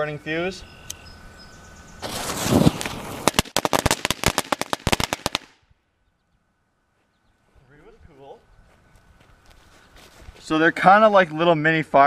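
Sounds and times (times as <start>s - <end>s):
firecracker rushing hiss: 2.0s - 5.6s
sharp crackling pops: 2.0s - 5.7s.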